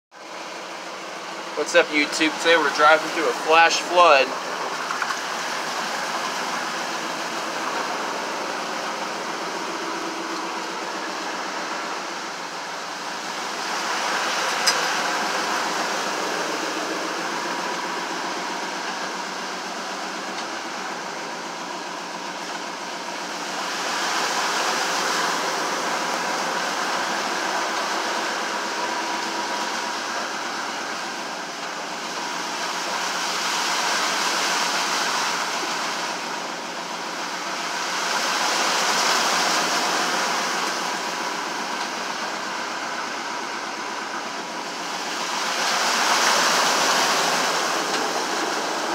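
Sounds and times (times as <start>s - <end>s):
vehicle engine running: 0.1s - 48.9s
water splashing against vehicle: 0.2s - 48.9s.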